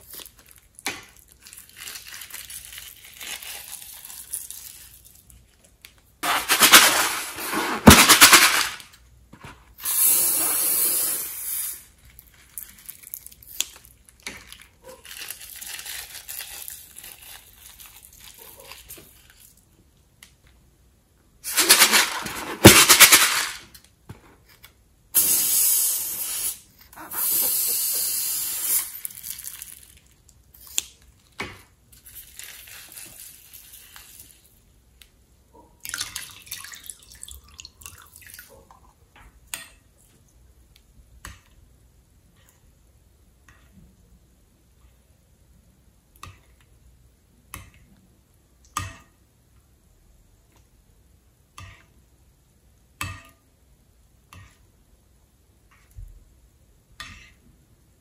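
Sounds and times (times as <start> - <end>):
slime squeezing out in hissing bursts: 9.8 - 12.0, 25.2 - 29.6.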